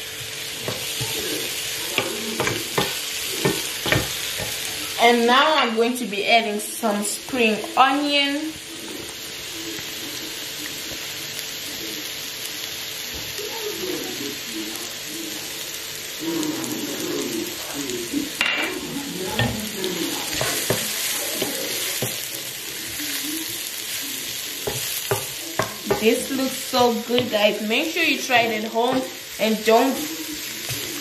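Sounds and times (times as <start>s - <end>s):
mushrooms sizzling in a skillet: 0.0s - 31.0s
wooden spoon scraping a pan: 18.7s - 23.2s.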